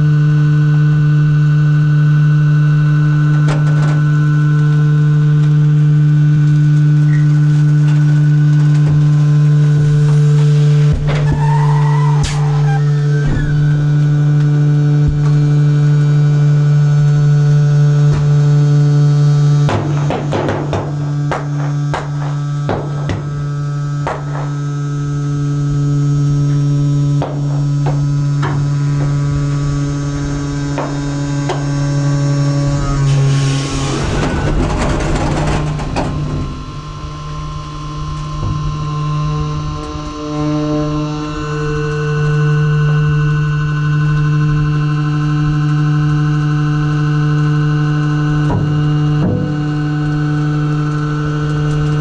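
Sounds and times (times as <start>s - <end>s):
hydraulic drive humming: 0.0s - 52.0s
crunching of compressed garbage: 32.9s - 38.8s.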